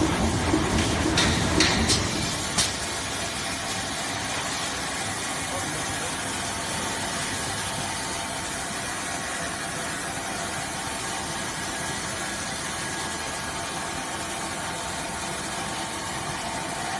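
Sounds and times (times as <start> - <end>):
band saw running: 0.0 - 16.9.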